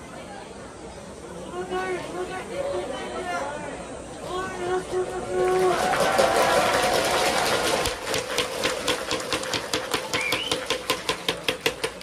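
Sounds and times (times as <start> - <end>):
crowd clapping in unison: 5.4 - 11.9.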